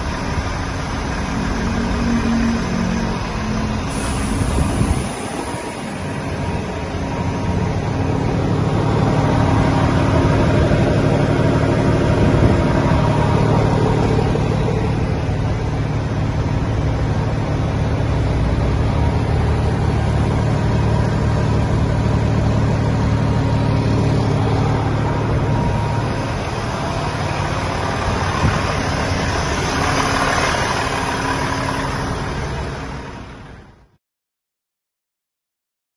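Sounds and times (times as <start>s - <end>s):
diesel engine idling: 0.0s - 34.0s.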